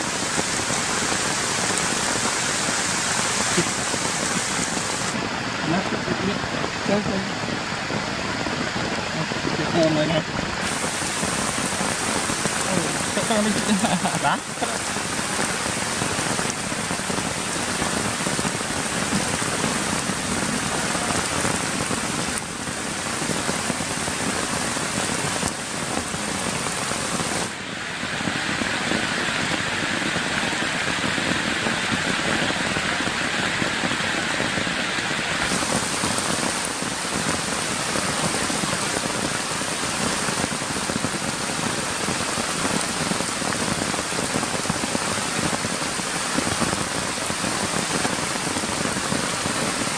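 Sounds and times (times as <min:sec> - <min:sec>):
heavy rain falling: 0:00.0 - 0:49.9.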